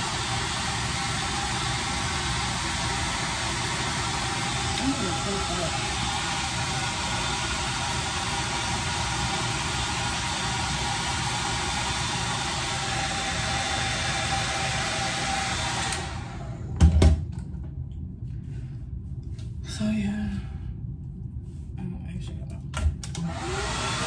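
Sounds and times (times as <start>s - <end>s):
hair dryer blowing: 0.0s - 16.8s, 23.1s - 24.0s.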